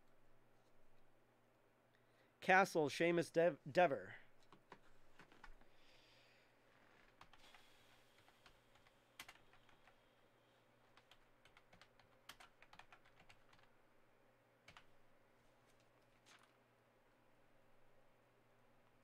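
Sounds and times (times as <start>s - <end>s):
computer keyboard typing: 7.1s - 10.0s, 10.8s - 13.7s, 14.6s - 15.0s.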